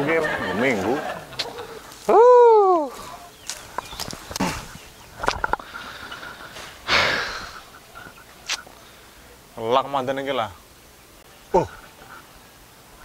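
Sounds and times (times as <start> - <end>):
plants rustling as cut with sickle: 2.9 - 5.5
man exhaling loudly: 6.9 - 7.6.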